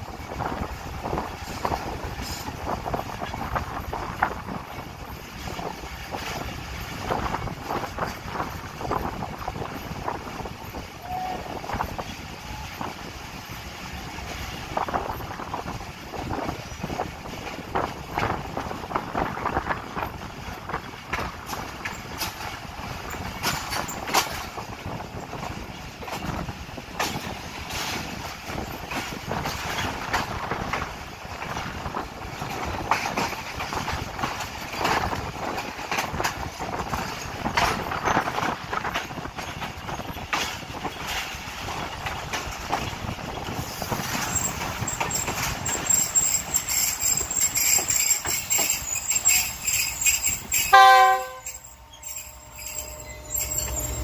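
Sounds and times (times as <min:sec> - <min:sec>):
train running noise: 0:00.0 - 0:54.0
wheels clacking over rail joints: 0:00.0 - 0:54.0
thin high tone: 0:48.8 - 0:54.0.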